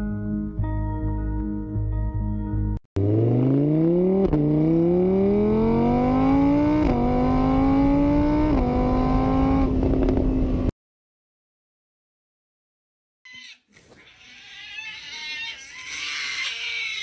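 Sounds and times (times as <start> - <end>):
car engine accelerating through gears: 3.0 - 10.7.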